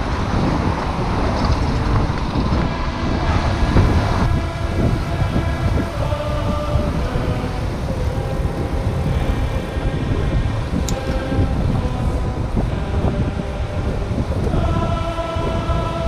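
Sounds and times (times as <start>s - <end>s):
road rumble: 0.0s - 16.0s
steady multi-tone hum: 0.0s - 16.0s
wind buffeting: 0.0s - 16.0s.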